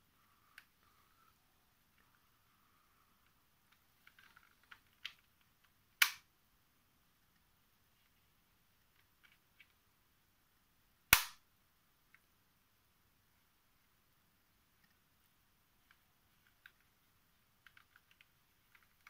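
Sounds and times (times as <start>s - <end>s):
puzzle sections snapping together: 6.0s - 6.2s, 11.1s - 11.4s.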